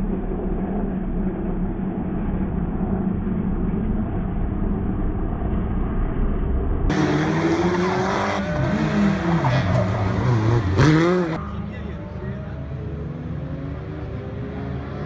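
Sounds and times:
rally car engine revving: 6.9s - 15.0s.

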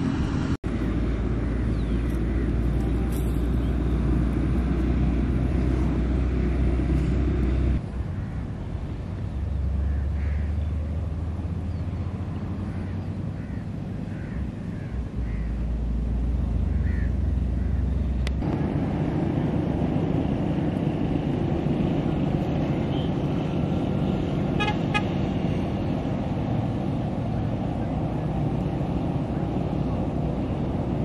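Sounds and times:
traffic rumble: 0.0s - 31.0s
horn toots: 24.6s - 25.2s.

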